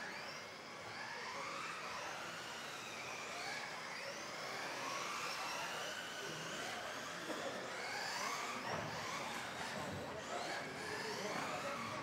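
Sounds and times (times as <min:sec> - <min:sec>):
rc buggy motors whining: 0:00.0 - 0:12.0.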